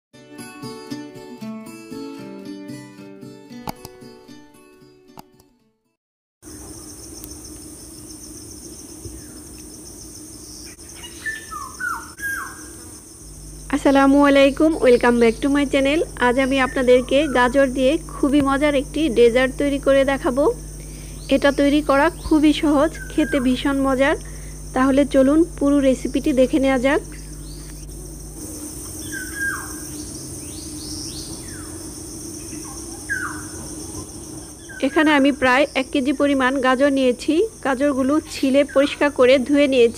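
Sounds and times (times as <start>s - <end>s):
high-pitched insect drone: 6.4s - 39.9s
birds chirping: 6.5s - 25.0s, 25.6s - 39.9s
low steady hum: 6.5s - 39.9s
sliding bird calls: 27.1s - 35.0s.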